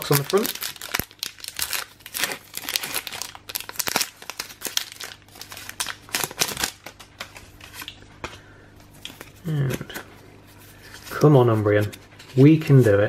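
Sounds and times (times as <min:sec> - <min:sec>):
foil wrapper tearing and crinkling: 0:00.0 - 0:08.0.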